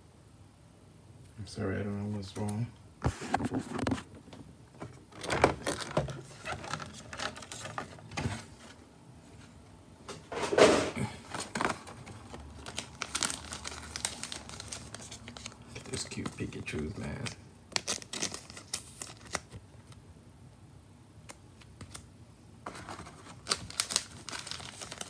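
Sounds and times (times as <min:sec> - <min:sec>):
plastic tearing: 0:05.1 - 0:08.0, 0:10.7 - 0:19.6, 0:22.7 - 0:25.0
plastic packaging crinkling: 0:05.1 - 0:08.7, 0:11.1 - 0:20.0, 0:21.8 - 0:25.0.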